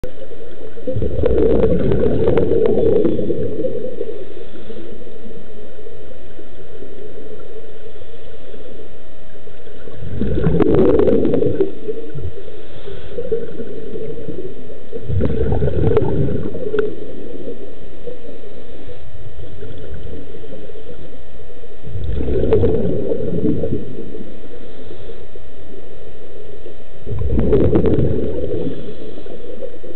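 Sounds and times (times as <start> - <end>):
underwater background noise: 0.0 - 29.9
diver exhaling bubbles: 0.8 - 4.3, 9.8 - 18.4, 21.9 - 24.3, 27.1 - 29.9.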